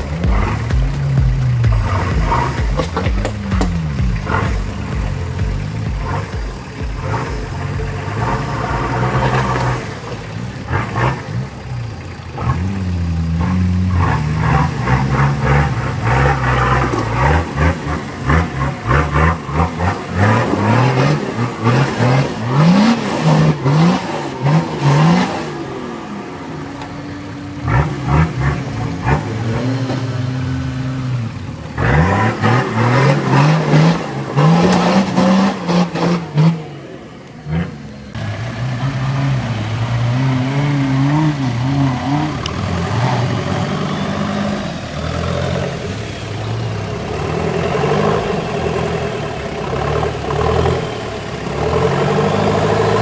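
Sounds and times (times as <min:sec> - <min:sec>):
vehicle rattling and knocking: 0:00.0 - 0:25.8
off-road vehicle engine revving: 0:00.0 - 0:53.0.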